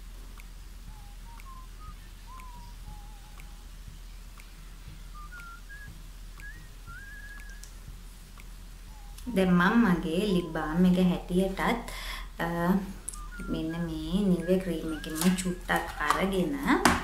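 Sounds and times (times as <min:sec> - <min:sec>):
low steady hum: 0:00.0 - 0:17.0
person whistling a tune: 0:00.9 - 0:03.7, 0:05.1 - 0:07.7, 0:08.9 - 0:09.4, 0:13.0 - 0:16.8.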